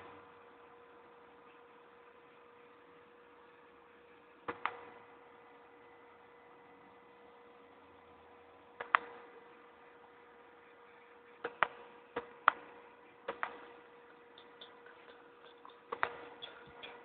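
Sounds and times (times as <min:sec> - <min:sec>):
electrical hum: 0:00.0 - 0:17.0
sharp clicks: 0:13.3 - 0:17.0.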